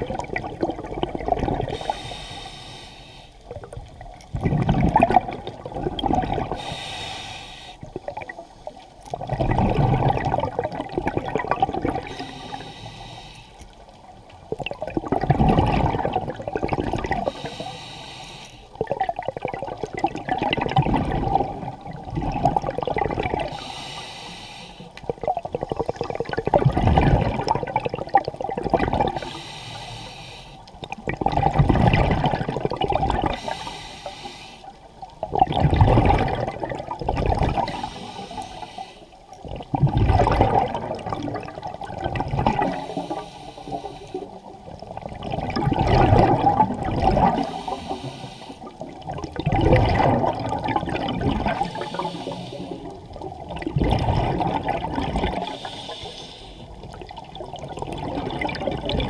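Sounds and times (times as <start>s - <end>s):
exhaled bubbles burbling: 0.0s - 2.0s, 3.4s - 6.7s, 7.8s - 8.4s, 9.0s - 12.6s, 14.5s - 17.4s, 18.8s - 23.6s, 25.0s - 29.3s, 30.8s - 33.6s, 35.0s - 38.5s, 39.3s - 48.0s, 48.6s - 55.8s, 56.8s - 59.0s
regulator hiss on inhale: 1.7s - 3.6s, 6.5s - 7.9s, 12.0s - 13.9s, 17.2s - 18.8s, 23.5s - 25.0s, 29.1s - 30.8s, 33.3s - 35.0s, 37.6s - 39.3s, 42.6s - 44.5s, 47.3s - 48.9s, 51.5s - 53.1s, 55.4s - 57.0s.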